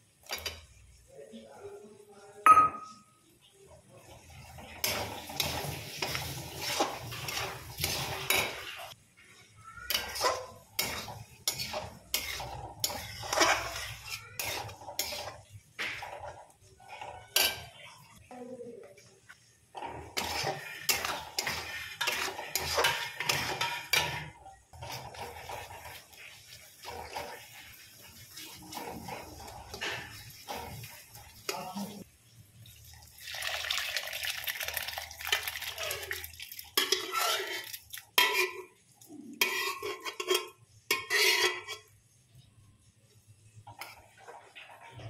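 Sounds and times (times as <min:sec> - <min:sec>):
metal spatula scraping a pan: 0:04.2 - 0:18.3, 0:19.3 - 0:32.1, 0:35.2 - 0:42.4, 0:43.7 - 0:45.0.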